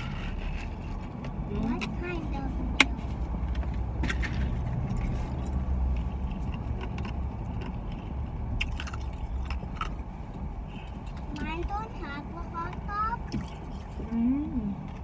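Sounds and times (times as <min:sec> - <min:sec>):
car cabin road noise: 0:00.0 - 0:15.0
ice chips being chewed: 0:05.0 - 0:10.0.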